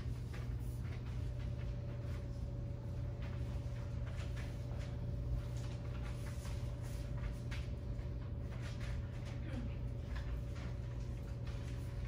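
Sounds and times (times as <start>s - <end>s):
soft rustles and clicks: 0.0s - 12.0s
steady low hum: 0.0s - 12.0s.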